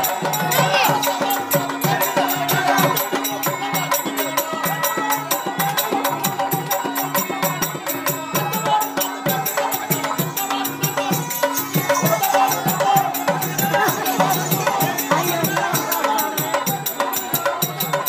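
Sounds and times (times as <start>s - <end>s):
fast dense percussion: 0.0s - 18.0s.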